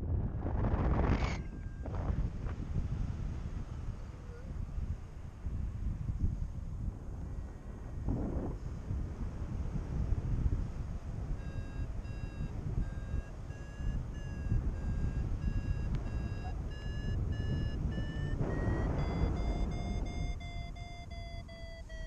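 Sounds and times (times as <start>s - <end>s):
wind on microphone: 0.0s - 22.0s
variometer short beeps: 1.2s - 2.3s, 11.3s - 22.0s.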